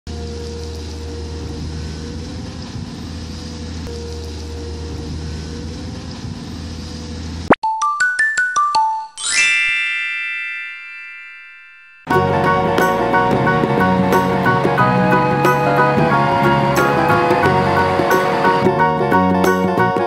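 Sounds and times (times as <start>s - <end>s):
bell-like mallet notes: 7.6s - 13.2s.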